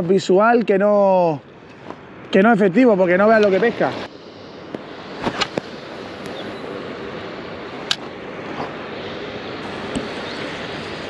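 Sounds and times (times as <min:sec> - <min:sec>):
wind: 0:00.0 - 0:11.0
sea water washing: 0:05.2 - 0:11.0.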